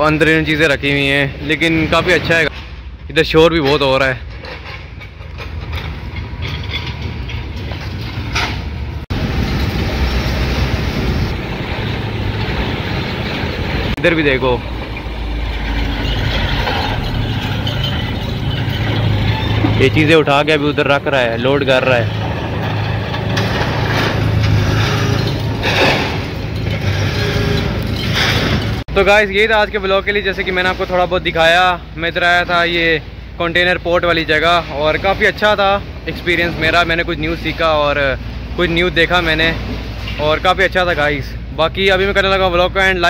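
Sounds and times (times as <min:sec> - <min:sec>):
industrial yard noise: 0:00.0 - 0:43.0
low engine rumble: 0:00.0 - 0:43.0
rushing noise: 0:07.6 - 0:29.5.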